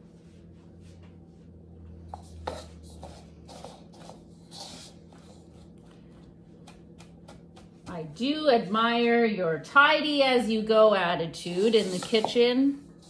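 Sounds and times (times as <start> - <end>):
low steady hum: 0.0 - 13.0
kitchen utensils and dishes scraping: 2.1 - 5.5, 11.4 - 13.0.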